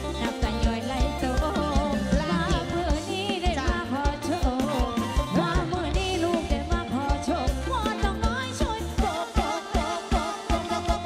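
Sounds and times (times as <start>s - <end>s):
drum and bass beat: 0.0s - 11.0s
wavering melodic lead: 8.8s - 11.0s.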